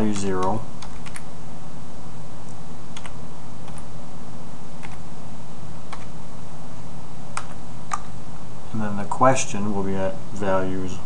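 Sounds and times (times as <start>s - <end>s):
keyboard keystrokes: 0.1s - 1.2s.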